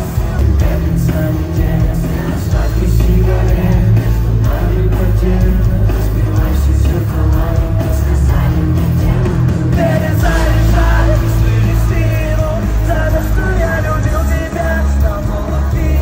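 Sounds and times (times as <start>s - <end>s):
live rock music: 0.0s - 16.0s
person singing: 0.0s - 16.0s.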